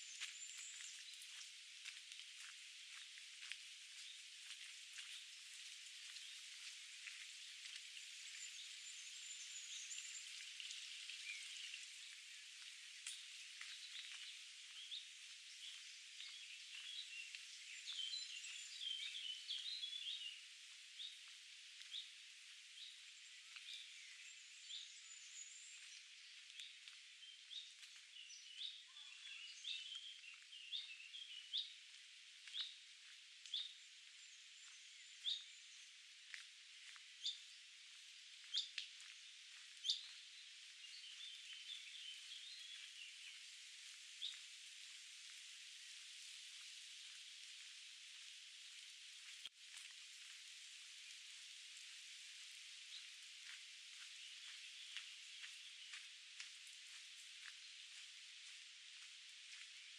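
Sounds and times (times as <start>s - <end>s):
songbirds chirping: 0.0s - 59.9s
footsteps: 0.1s - 8.4s, 46.2s - 51.1s, 53.0s - 59.9s.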